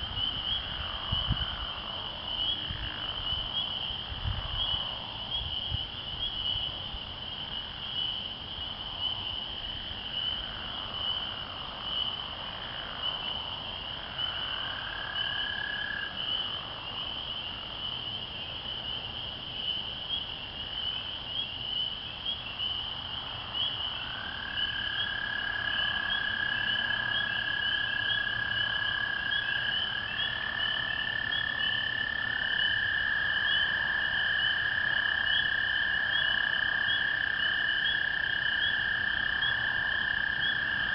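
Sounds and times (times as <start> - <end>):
frogs peeping: 0.0 - 40.9
toads trilling: 19.7 - 40.9.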